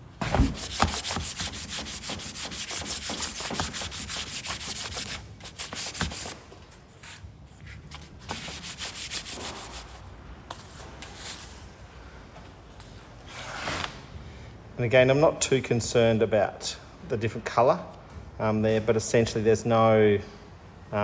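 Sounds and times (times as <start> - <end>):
abrasive paper rubbing on metal: 0.4 - 6.4, 7.0 - 10.0.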